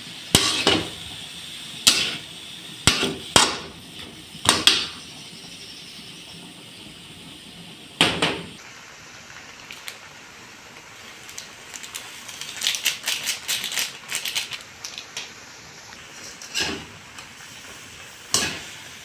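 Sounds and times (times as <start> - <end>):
faint steady hiss: 0.0 - 19.0
sachet crinkling: 11.2 - 15.1.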